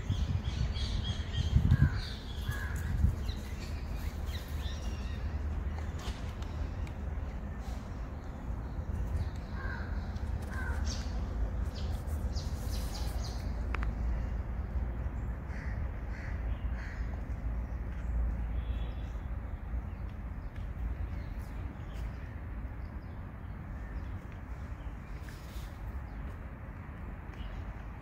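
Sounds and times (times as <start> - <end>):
crows cawing: 1.8 - 2.9, 9.6 - 10.9, 15.5 - 17.1.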